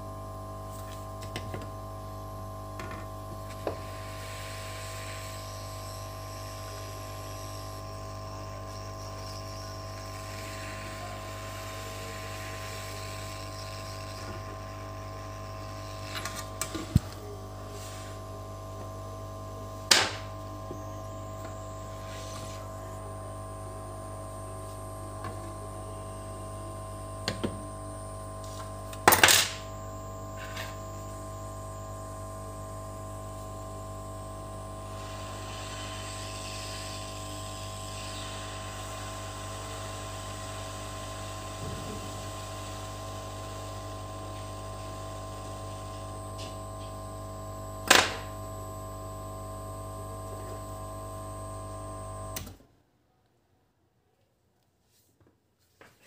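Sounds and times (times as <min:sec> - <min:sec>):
hot air gun humming: 0:03.3 - 0:23.3, 0:34.2 - 0:46.6.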